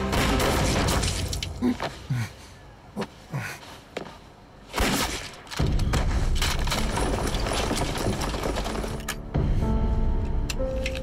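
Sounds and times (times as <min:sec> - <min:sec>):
gunshots: 0:00.0 - 0:01.3.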